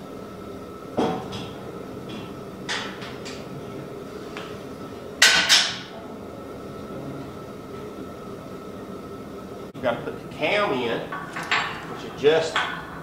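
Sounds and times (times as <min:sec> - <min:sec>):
metal clanks and knocks: 0:11.2 - 0:13.0.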